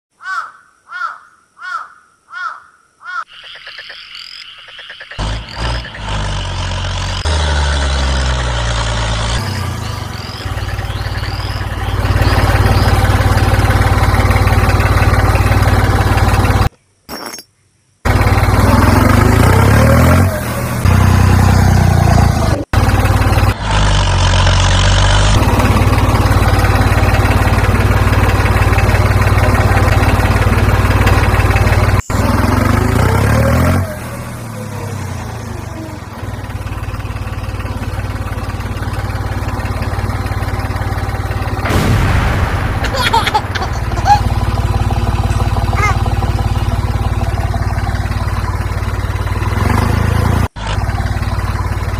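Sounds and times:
motor running with deep hum: 9.6s - 16.7s, 36.0s - 51.9s.

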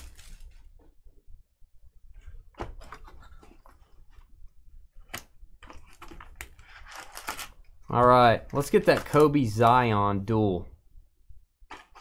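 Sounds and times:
cards clicking and rustling: 5.1s - 7.6s.

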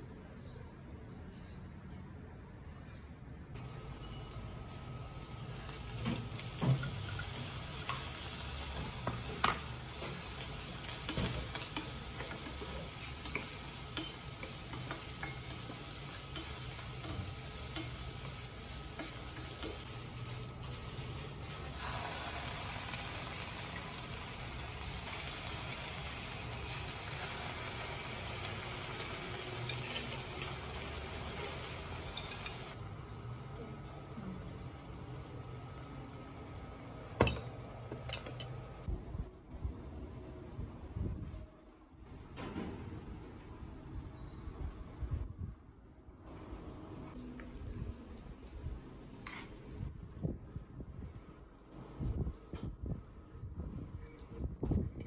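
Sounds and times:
food sizzling in a pan: 3.6s - 38.8s
wooden spatula scraping a pan: 8.7s - 22.5s.

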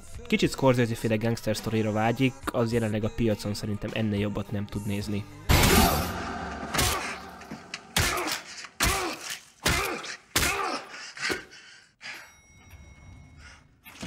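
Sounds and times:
heavy booming impacts: 5.5s - 8.1s.

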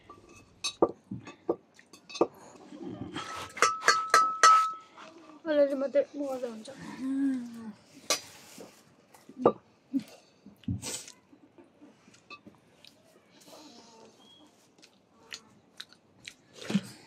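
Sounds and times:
dishes and utensils clinking: 0.0s - 5.0s.

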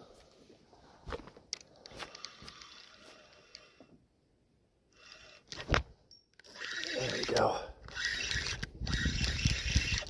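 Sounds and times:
fishing reel clicks and knocks: 6.4s - 10.0s.

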